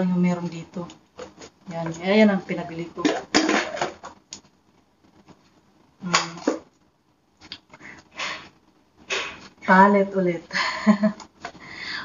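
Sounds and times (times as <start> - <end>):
plastic bottles clicking and knocking: 3.0 - 4.2.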